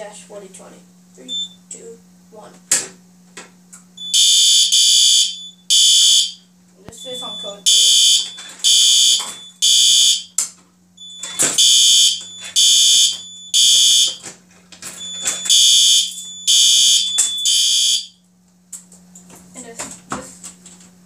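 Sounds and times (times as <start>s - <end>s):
low steady alarm panel hum: 0.0s - 20.0s
fire alarm horn blasts: 4.0s - 6.4s, 7.0s - 10.4s, 11.0s - 14.2s, 15.0s - 18.2s.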